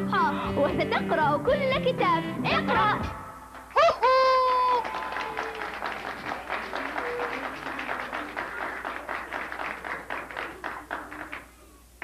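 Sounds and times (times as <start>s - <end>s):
children applauding: 3.8s - 12.0s.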